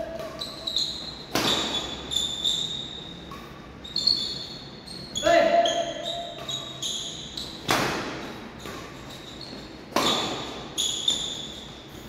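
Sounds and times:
shoes squeaking on court: 0.0s - 12.0s
racket hitting shuttlecock: 1.3s - 2.1s, 7.6s - 9.2s, 9.9s - 11.4s.

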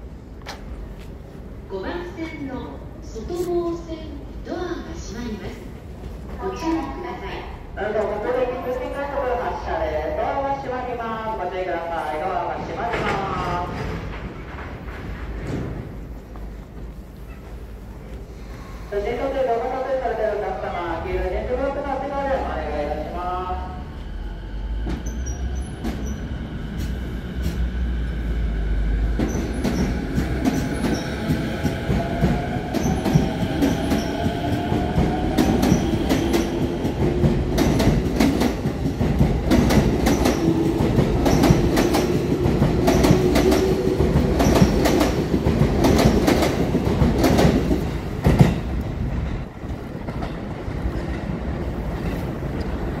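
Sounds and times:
train wheels clacking over rail joints: 35.4s - 48.8s.

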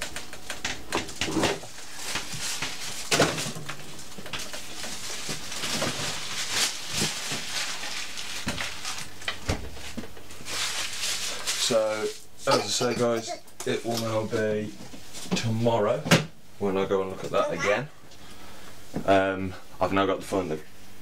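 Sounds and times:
plastic bag rustling: 1.1s - 12.4s.

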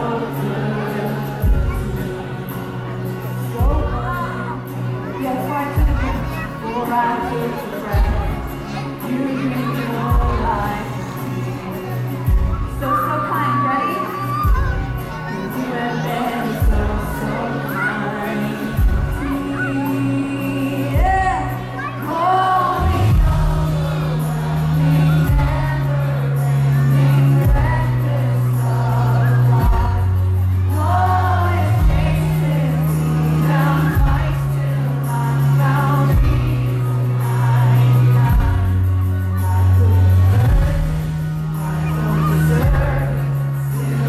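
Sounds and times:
group singing: 0.0s - 4.5s, 15.2s - 44.0s
backing music with bass line: 0.0s - 44.0s.

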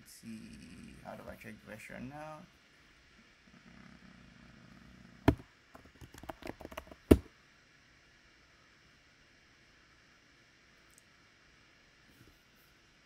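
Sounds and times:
computer keyboard typing: 5.3s - 7.2s.

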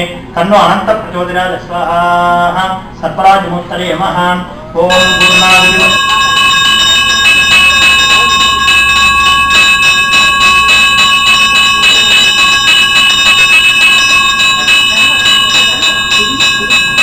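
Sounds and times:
hand bell ringing rapidly: 4.9s - 17.0s.

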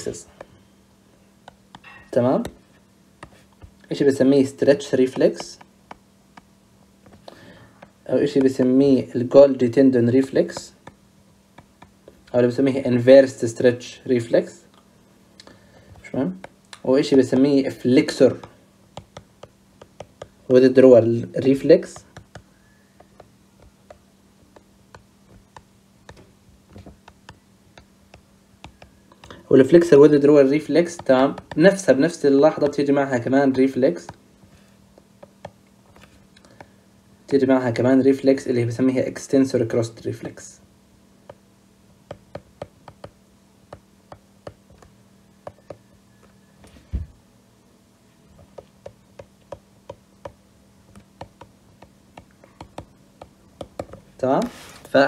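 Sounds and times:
faint steady hum: 0.0s - 55.0s
stylus tapping on glass screen: 1.4s - 2.6s, 42.1s - 46.3s, 48.4s - 54.0s.

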